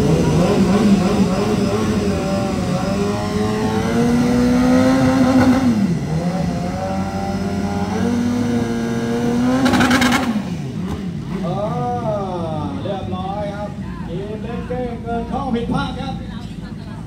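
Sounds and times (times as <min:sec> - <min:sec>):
superbike engine revving: 0:00.0 - 0:12.8.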